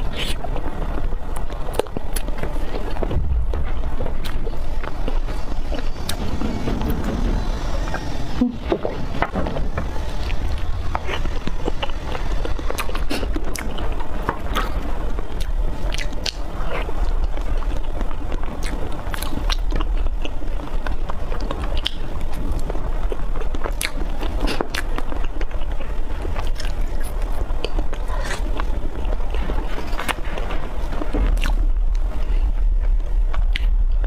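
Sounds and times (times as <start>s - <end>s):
steady low hum: 0.0s - 34.0s
wet chewing and mouth clicks: 10.9s - 34.0s.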